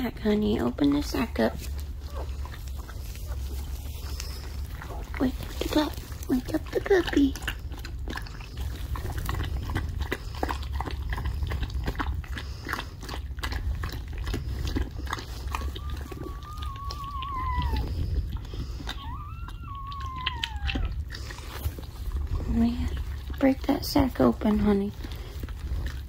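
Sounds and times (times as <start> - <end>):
dog licking and nibbling wetly: 0.0 - 26.0
dog whining: 1.9 - 5.2, 15.2 - 21.6.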